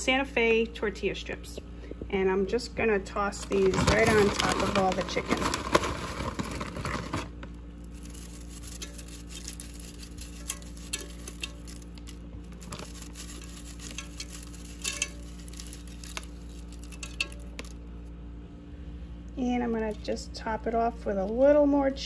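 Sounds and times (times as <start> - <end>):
low hum: 0.0 - 22.0
tortilla strips crackling: 3.4 - 17.8.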